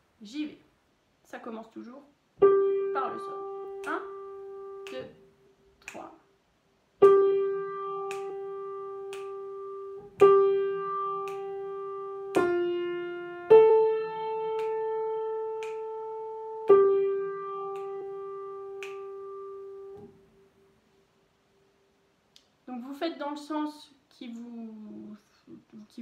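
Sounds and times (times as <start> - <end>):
slow piano melody: 2.4 - 5.4, 7.0 - 20.7
soft finger snaps: 3.8 - 4.2, 4.8 - 5.2, 5.8 - 6.2, 8.0 - 10.4, 11.2 - 11.6, 14.5 - 14.9, 15.6 - 16.0, 17.7 - 20.1, 22.3 - 22.6.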